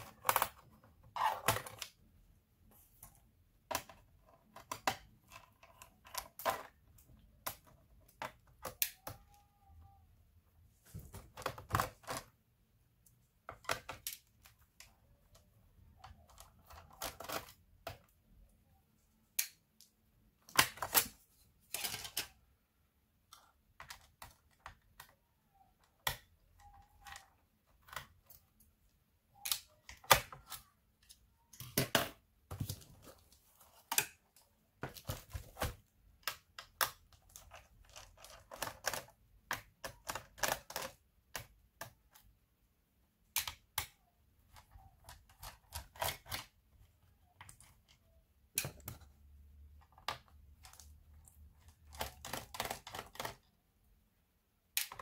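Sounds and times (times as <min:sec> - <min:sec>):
hands clicking on hard plastic: 0:23.2 - 0:42.4, 0:43.3 - 0:53.6.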